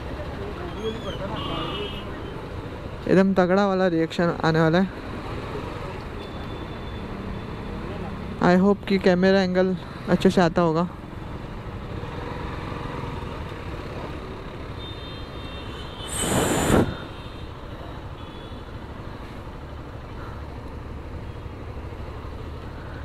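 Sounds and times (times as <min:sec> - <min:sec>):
traffic engine rumble: 0:00.0 - 0:23.0
short loud hiss: 0:16.0 - 0:17.2.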